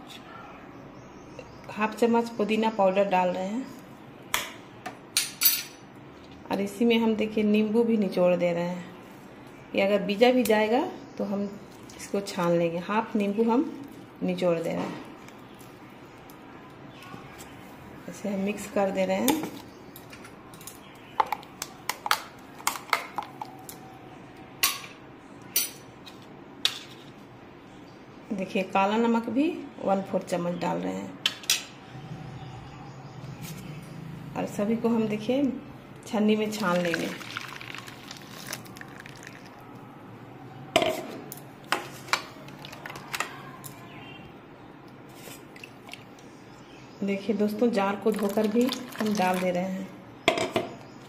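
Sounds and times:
liquid pouring into strainer: 36.6s - 39.6s, 48.1s - 49.4s.

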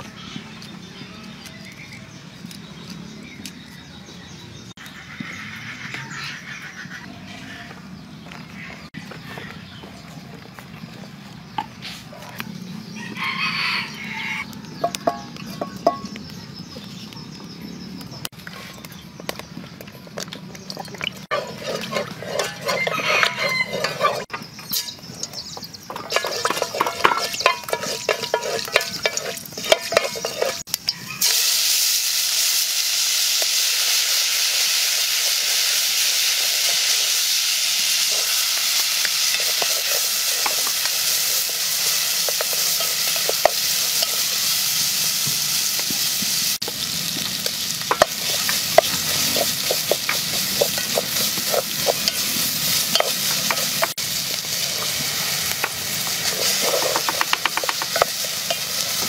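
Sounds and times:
onions sizzling in hot oil: 20.2s - 59.0s
wooden spatula scraping a pot: 20.3s - 30.7s, 47.9s - 59.0s.

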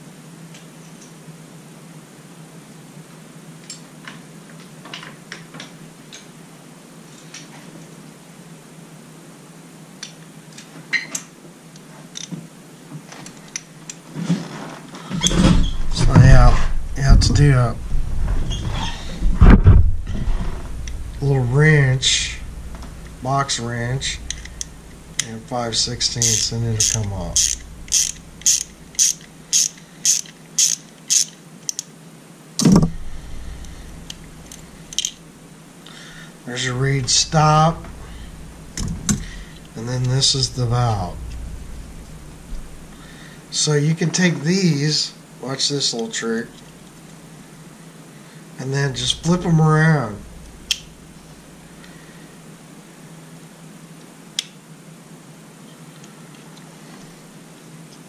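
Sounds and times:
low steady hum: 14.9s - 30.6s, 32.0s - 57.7s
loud clunk: 15.2s - 25.0s, 32.6s - 34.2s
ratchet wrench clicking: 24.0s - 25.3s, 26.0s - 31.8s, 33.2s - 35.2s.

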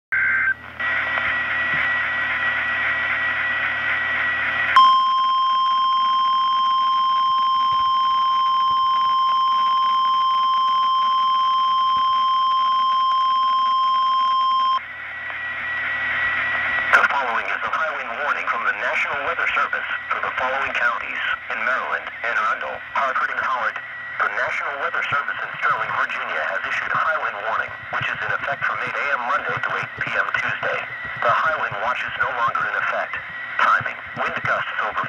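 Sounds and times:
steady warning alarm tone: 3.0s - 16.9s, 22.5s - 35.0s.

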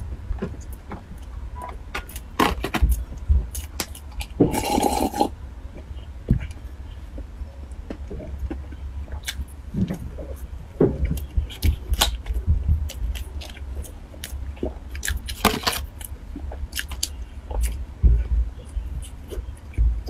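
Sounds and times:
steady low hum: 0.0s - 20.0s
chewing and mouth clicks: 11.1s - 17.8s.

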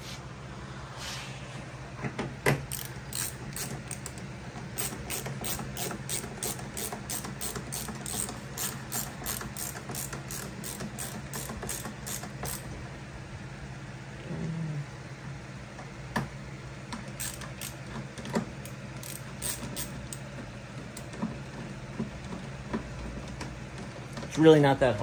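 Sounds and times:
ratcheting screwdriver clicking: 2.7s - 4.2s, 4.8s - 12.6s, 17.2s - 17.8s, 18.6s - 20.2s.

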